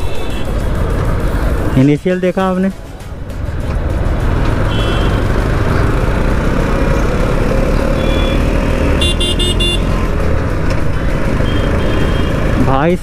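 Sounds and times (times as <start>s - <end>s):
motorcycle engine accelerating: 3.5s - 12.7s
vehicle horn beeps: 4.7s - 5.2s, 8.0s - 8.4s, 9.0s - 9.9s, 11.4s - 12.4s.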